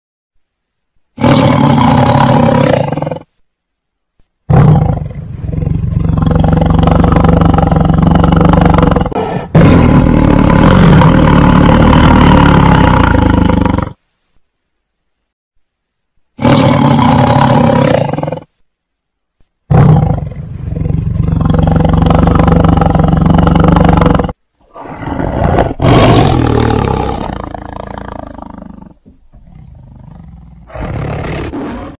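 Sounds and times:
tiger low growl: 0:01.2 - 0:03.3, 0:04.5 - 0:14.0, 0:19.7 - 0:32.0
tiger roaring: 0:01.2 - 0:03.3, 0:04.5 - 0:14.0, 0:16.4 - 0:18.5, 0:19.7 - 0:32.0.

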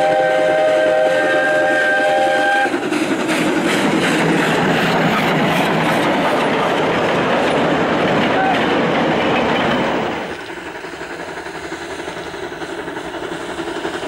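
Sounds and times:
steam locomotive whistle: 0:00.0 - 0:02.8, 0:08.3 - 0:08.7
train wheels clattering on rails: 0:00.0 - 0:14.0.

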